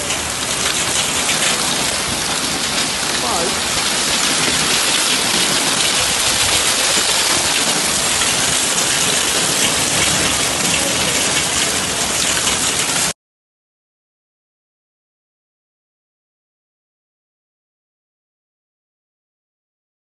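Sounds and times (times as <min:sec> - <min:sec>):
hailstones ticking on hard surfaces: 0:00.0 - 0:13.1
heavy rain hissing: 0:00.0 - 0:13.2.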